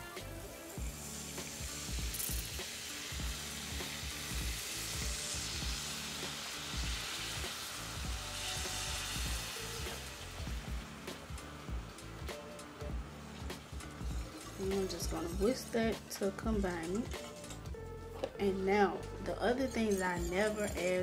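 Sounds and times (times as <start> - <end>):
stock pouring into sizzling pan: 0.0 - 16.1.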